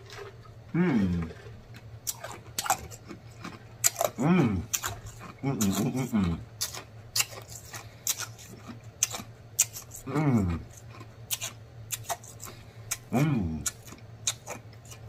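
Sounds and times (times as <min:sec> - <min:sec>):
short falling moan: 0:00.7 - 0:01.4
person chewing with lip smacks: 0:01.2 - 0:15.0.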